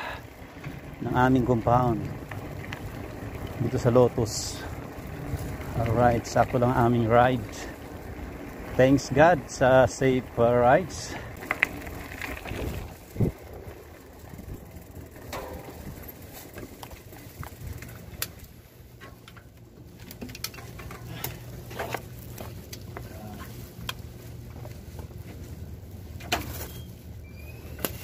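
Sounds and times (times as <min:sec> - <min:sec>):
bicycle clicks and knocks: 0:00.0 - 0:25.5, 0:27.4 - 0:28.0
bicycle thump: 0:15.2 - 0:18.3
bird calling: 0:26.6 - 0:28.0.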